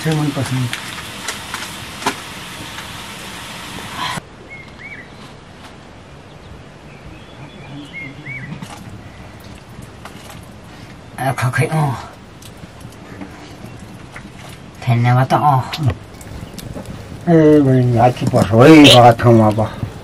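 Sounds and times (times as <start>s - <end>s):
hiss with small crackles: 15.7s - 20.0s.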